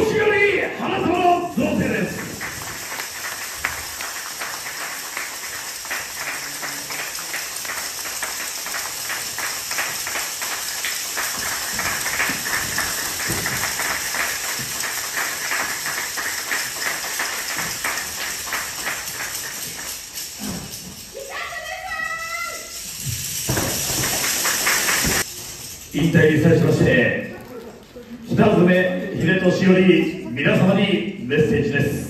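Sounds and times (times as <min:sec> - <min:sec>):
audience applauding: 0:01.2 - 0:20.4, 0:23.4 - 0:25.3, 0:27.3 - 0:28.4.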